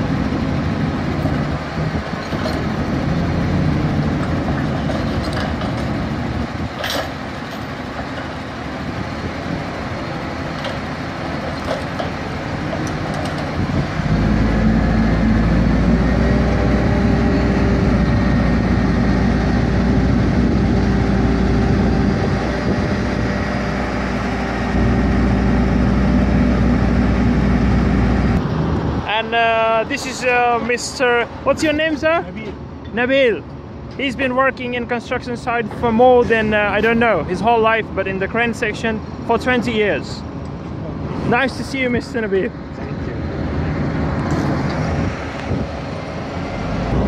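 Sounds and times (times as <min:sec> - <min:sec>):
diesel engine idling and revving: 0:00.0 - 0:47.0.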